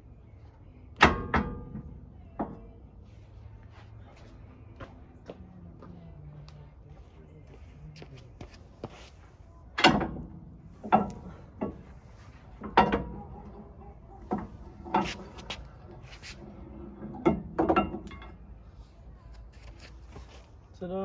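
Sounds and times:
metallic clanks and knocks: 1.0 - 2.8, 9.8 - 15.4, 16.7 - 18.4.

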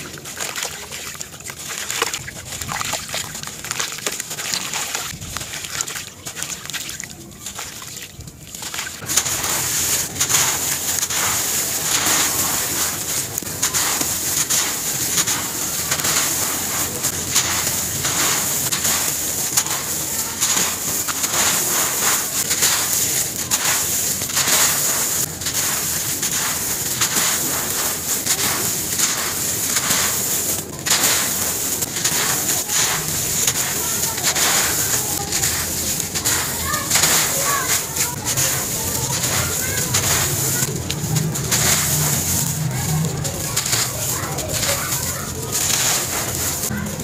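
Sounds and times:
sand crunching and crumbling: 0.0 - 47.0.

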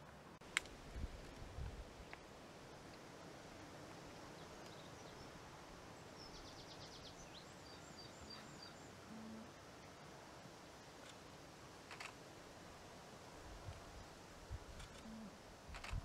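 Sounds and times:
faint outdoor hiss: 0.0 - 16.0
distant small bird singing: 4.3 - 10.0.

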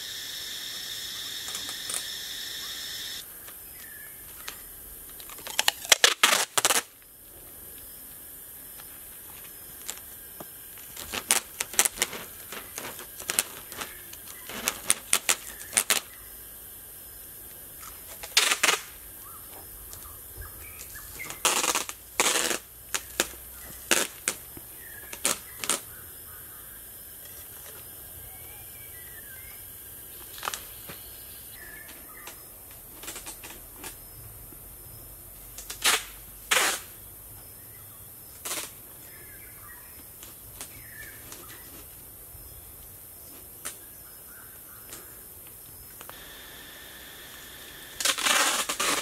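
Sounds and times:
packing tape pulled off roll: 5.2 - 7.0, 11.0 - 16.1, 18.1 - 19.0, 21.2 - 24.4, 35.6 - 36.9, 38.4 - 38.8, 48.0 - 49.0.

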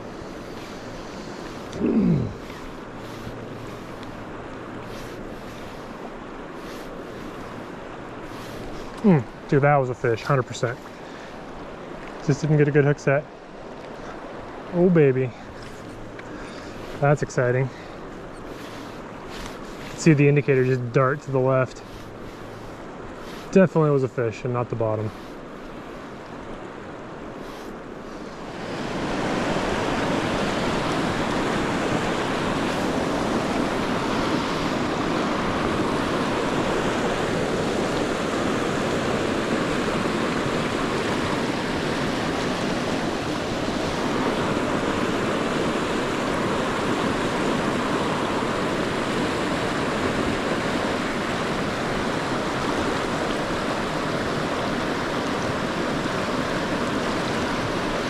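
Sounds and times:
rushing river water: 0.0 - 58.0.

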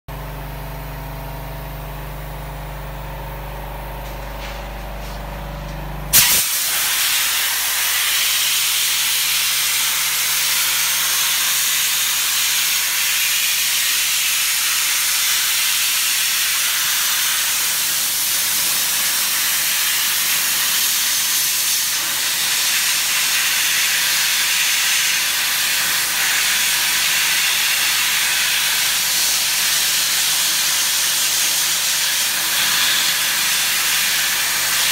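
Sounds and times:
low machine hum: 0.1 - 6.9
sandblaster hissing: 6.1 - 34.9.

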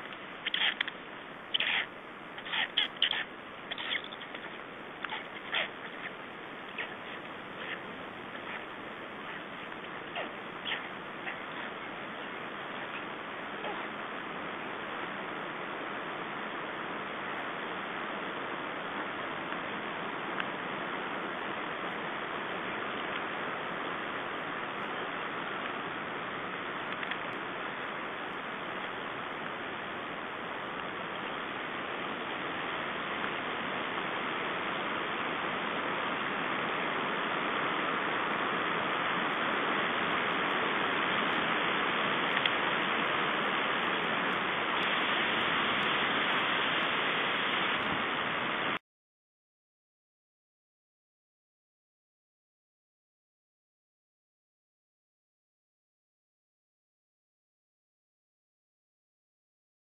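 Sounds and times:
steady hiss: 0.0 - 48.8.

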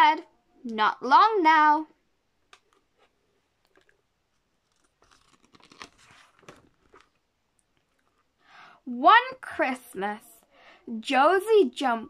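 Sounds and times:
paper page turning: 2.6 - 7.2.

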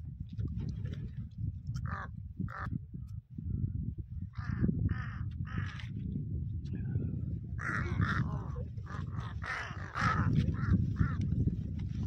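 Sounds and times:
crows cawing: 1.8 - 2.7, 4.4 - 5.8, 7.6 - 11.3.

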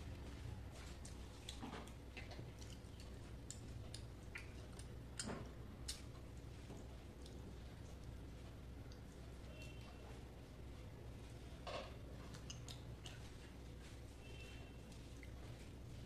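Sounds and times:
person chewing: 0.4 - 9.2, 12.2 - 14.0.

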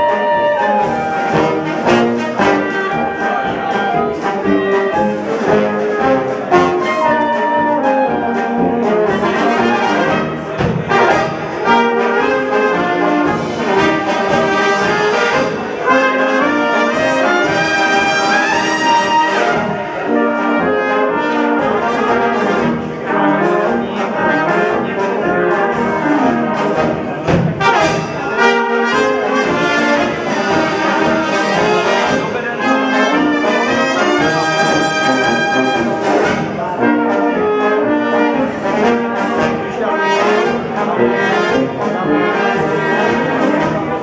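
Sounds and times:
brass band playing dance music: 0.0 - 44.0.

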